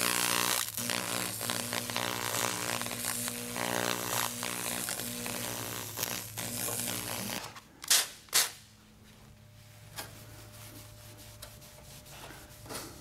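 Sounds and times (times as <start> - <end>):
weld cleaner buzzing and sizzling: 0.0 - 7.5.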